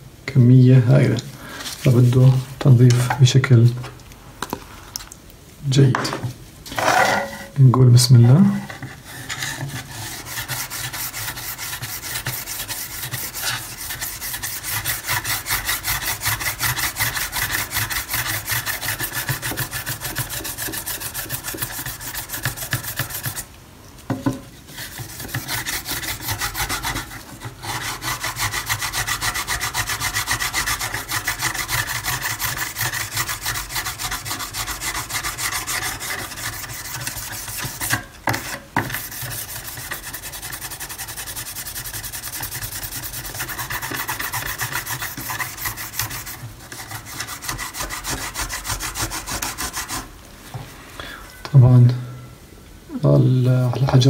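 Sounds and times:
abrasive block scrubbing steel blade: 0:09.2 - 0:23.5, 0:24.8 - 0:50.1.

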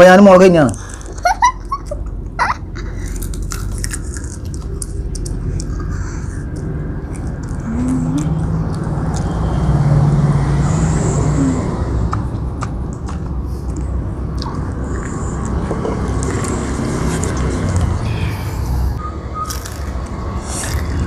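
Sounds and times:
steady low rumble: 0:00.8 - 0:21.0
man chewing chilli crunching: 0:02.9 - 0:09.8, 0:11.7 - 0:18.1, 0:19.3 - 0:21.0
man humming: 0:07.6 - 0:08.5.

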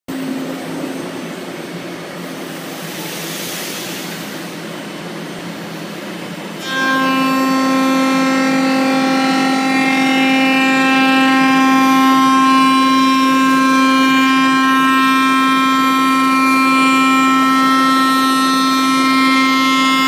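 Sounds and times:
router spindle whine: 0:06.6 - 0:20.0.

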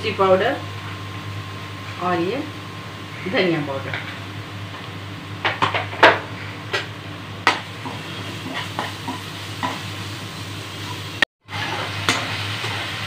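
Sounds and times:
paste sizzling in oil: 0:07.7 - 0:13.0.

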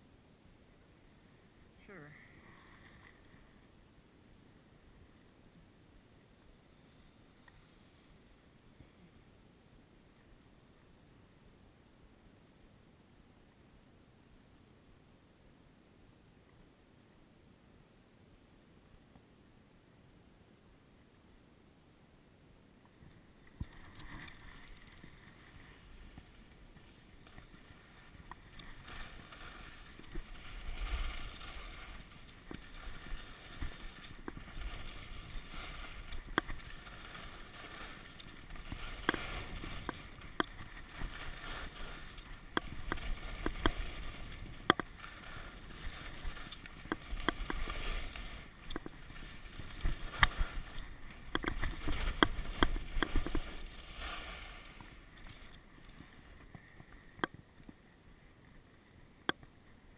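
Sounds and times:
skis scraping over snow: 0:23.1 - 0:57.2.

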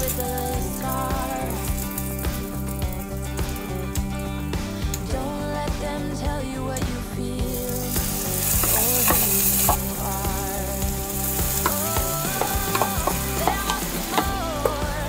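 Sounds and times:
food sizzling in frying pan: 0:00.0 - 0:05.0, 0:07.5 - 0:15.0.

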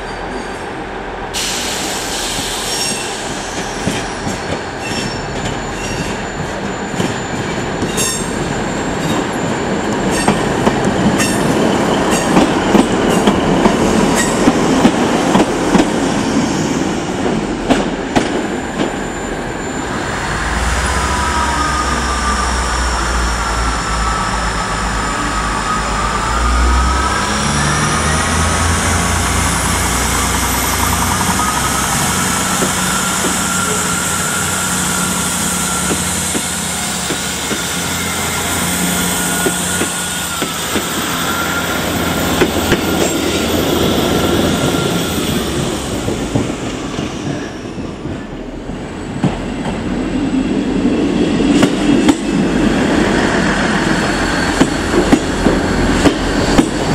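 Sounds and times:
diesel train engines revving: 0:00.2 - 0:56.9
high squealing tone: 0:18.9 - 0:45.9
train wheels clacking over rail joints: 0:54.5 - 0:56.9.

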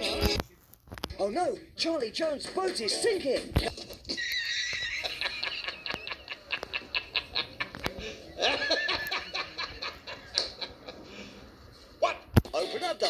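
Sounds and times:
man laughing hard: 0:04.0 - 0:07.7, 0:08.4 - 0:10.9.

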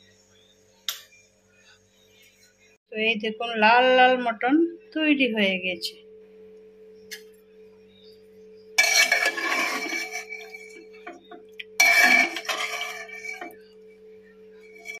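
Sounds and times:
steady low hum: 0:00.0 - 0:15.0
metal spoon scraping a pot: 0:08.8 - 0:13.8, 0:14.6 - 0:15.0.

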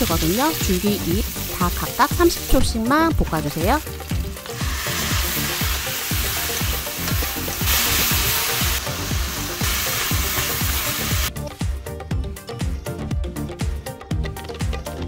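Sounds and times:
vegetables sizzling in a wok: 0:00.0 - 0:11.3
background music beat: 0:00.1 - 0:15.0.

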